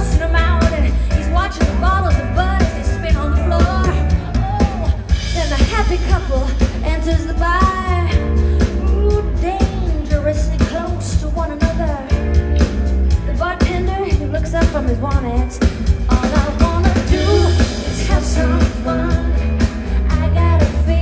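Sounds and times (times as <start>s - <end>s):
bass line: 0.0s - 21.0s
drum beats: 0.0s - 21.0s
person singing: 13.3s - 21.0s.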